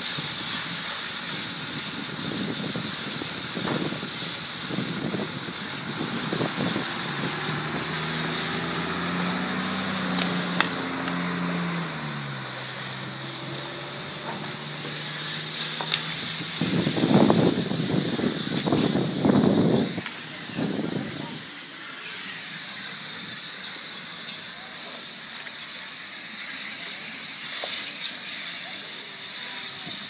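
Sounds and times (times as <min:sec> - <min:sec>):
fire engine motor passing: 0:00.0 - 0:30.0
steady hiss: 0:00.0 - 0:30.0
sharp pops: 0:09.6 - 0:11.4.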